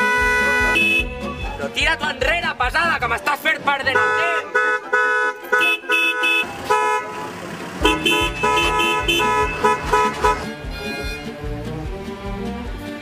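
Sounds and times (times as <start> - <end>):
car horn short toots: 0.0 - 1.5, 3.9 - 10.4
music with steady beat: 0.0 - 3.7, 7.8 - 13.0.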